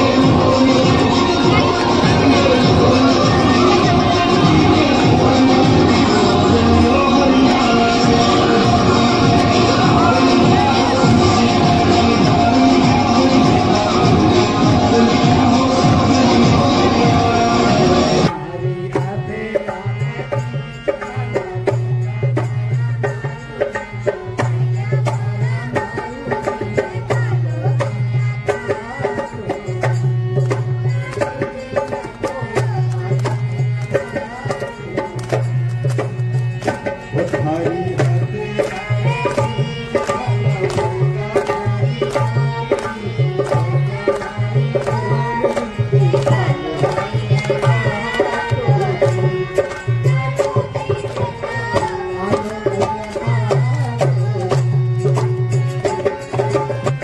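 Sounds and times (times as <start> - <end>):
hand drum beat: 0.0 - 18.3.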